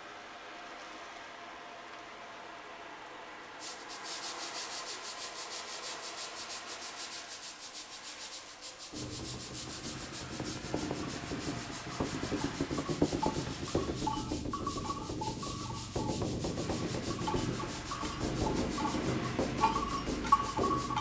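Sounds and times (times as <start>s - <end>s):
low rumble with knocks: 9.0s - 21.0s.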